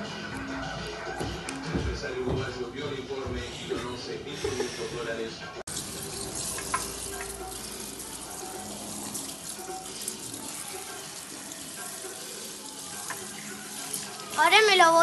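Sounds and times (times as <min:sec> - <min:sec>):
water spraying onto hair: 0:05.7 - 0:14.8.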